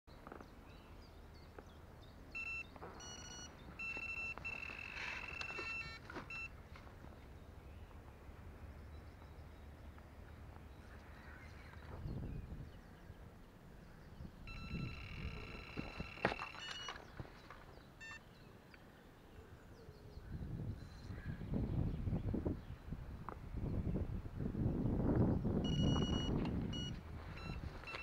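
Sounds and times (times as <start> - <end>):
electronic bite alarm beeping: 2.4 - 6.6, 14.5 - 17.1, 18.0 - 18.2, 25.6 - 28.0.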